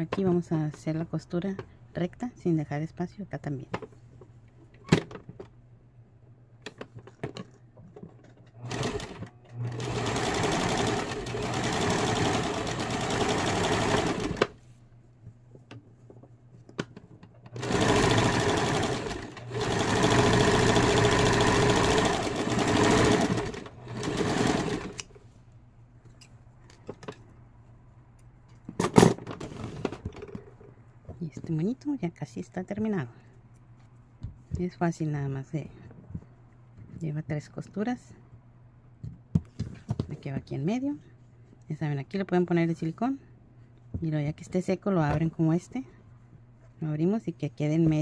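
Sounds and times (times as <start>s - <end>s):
electric sewing machine stitching: 8.6s - 14.6s, 17.6s - 25.0s.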